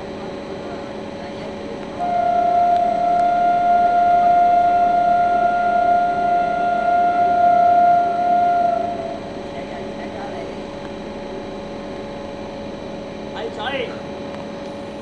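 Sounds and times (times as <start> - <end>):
train horn long blast: 2.0 - 9.7.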